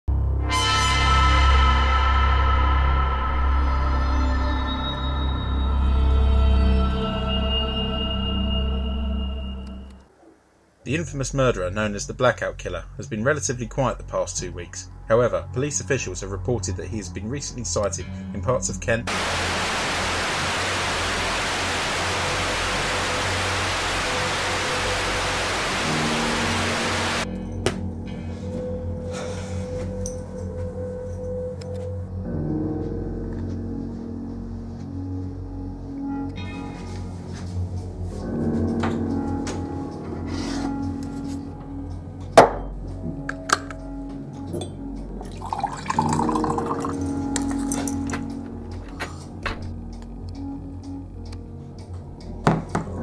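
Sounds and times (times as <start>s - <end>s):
low sustained tones: 0.8s - 10.0s, 19.1s - 27.3s
television static hiss: 19.1s - 27.2s
low hum: 19.1s - 27.3s
water pouring into mug: 45.2s - 47.2s.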